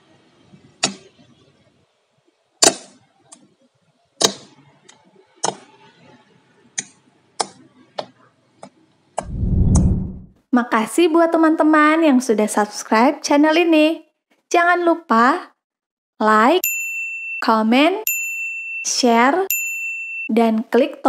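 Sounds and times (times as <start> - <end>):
low rushing noise: 9.2 - 10.3.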